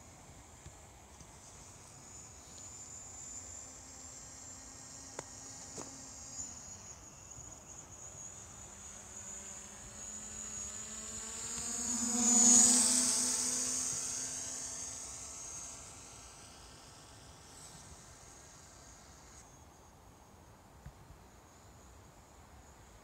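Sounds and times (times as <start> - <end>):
drone propellers buzzing: 1.7 - 19.5.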